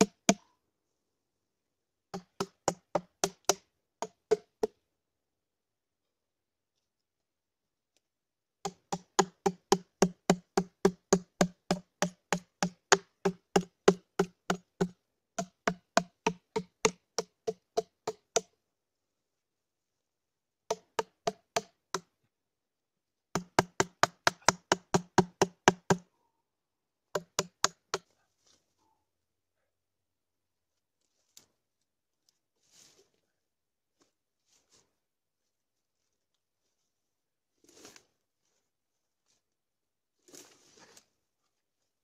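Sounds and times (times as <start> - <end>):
axe chopping log: 2.2 - 4.7, 8.7 - 18.4, 23.4 - 26.0.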